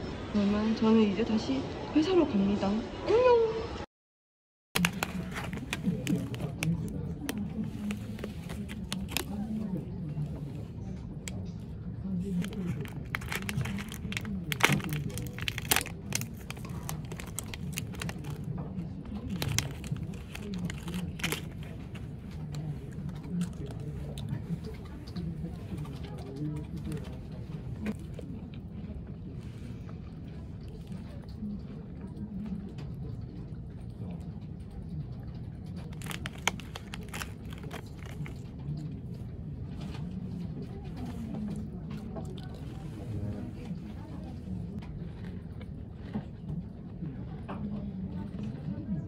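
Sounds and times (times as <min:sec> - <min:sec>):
rustling and clicking: 0:04.8 - 0:11.6, 0:12.2 - 0:28.0, 0:35.3 - 0:38.9
crinkling handling noise: 0:04.8 - 0:31.7, 0:35.3 - 0:45.4
low background hum: 0:04.8 - 0:49.0
low background murmur: 0:04.8 - 0:49.0.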